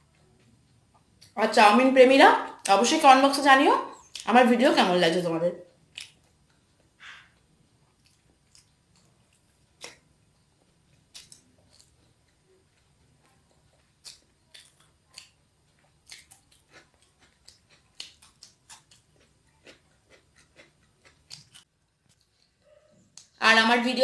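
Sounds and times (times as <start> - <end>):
chewing and mouth sounds: 5.6 - 23.4.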